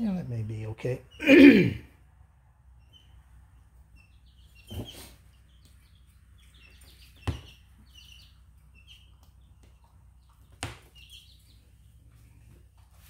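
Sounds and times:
high bird chirps: 2.8 - 12.4.

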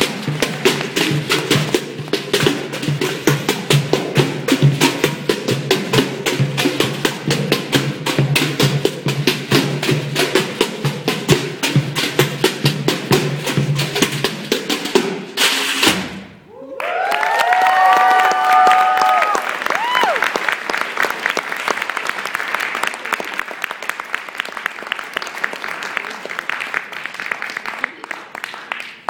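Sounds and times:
pail drumming ensemble: 0.0 - 16.5.

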